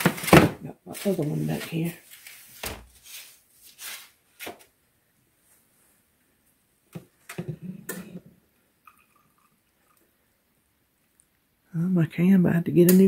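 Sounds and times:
baking sheets clicking and knocking: 0.0 - 3.2.

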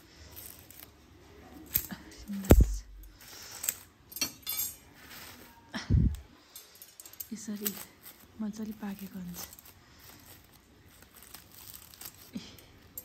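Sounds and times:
heavy thump: 2.5 - 3.1.

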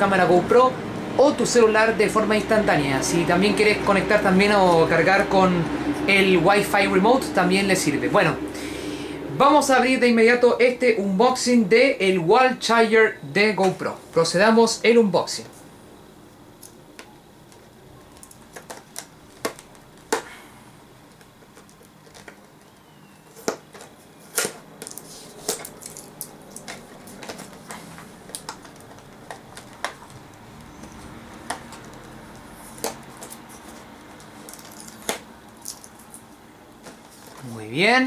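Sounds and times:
plastic crinkling: 17.4 - 20.4, 21.0 - 37.6.

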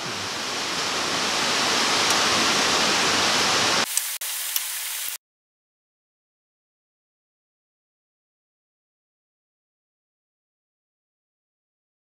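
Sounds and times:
heavy rain falling: 0.0 - 5.2.

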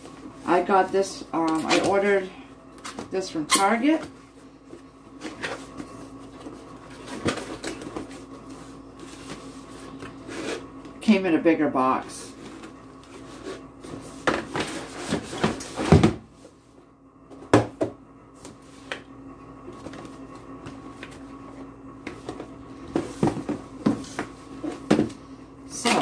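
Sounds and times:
faint steady hum: 0.0 - 26.0
cardboard boxes rustling: 3.9 - 10.4, 12.3 - 16.2, 22.1 - 25.2.

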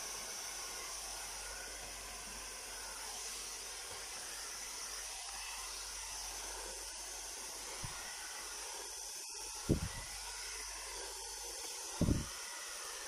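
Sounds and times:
hair dryer blowing air: 0.0 - 13.0.

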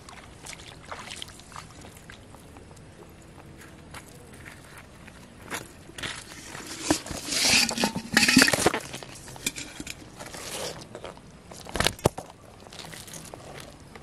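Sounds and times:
fish rustling and scuffing: 3.5 - 12.0
scraping on muddy bank: 5.9 - 11.0.

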